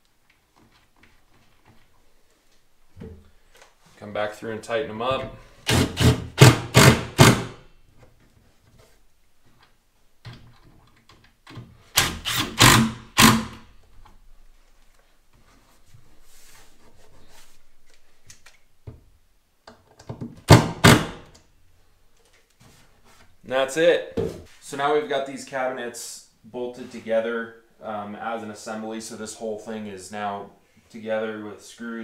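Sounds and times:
impact driver hammering: 5.7 - 7.6, 12.0 - 13.6, 20.5 - 21.3.

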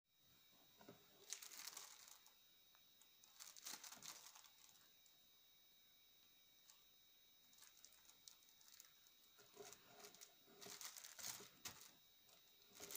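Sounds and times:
plastic bag crinkling: 1.2 - 2.4, 3.2 - 4.9, 7.5 - 12.9.

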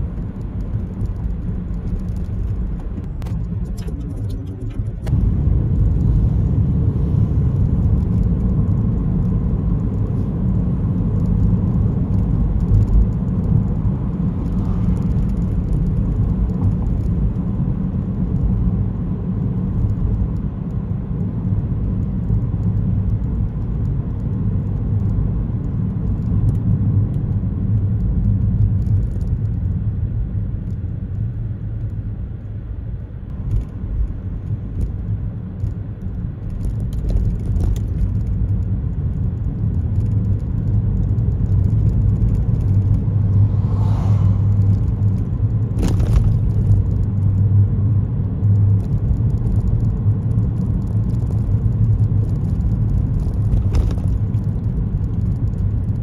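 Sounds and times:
road and tyre rumble: 0.0 - 56.0.

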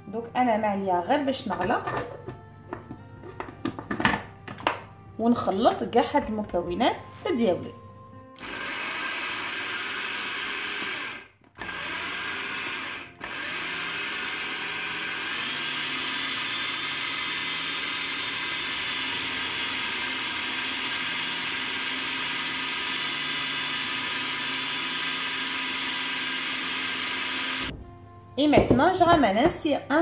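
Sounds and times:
food processor motor whining: 8.4 - 27.7.

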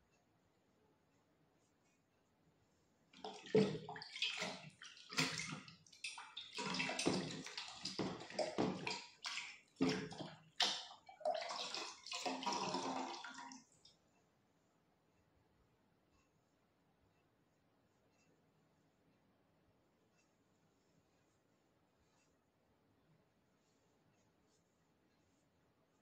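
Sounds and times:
water sloshing and splashing: 3.2 - 13.8.

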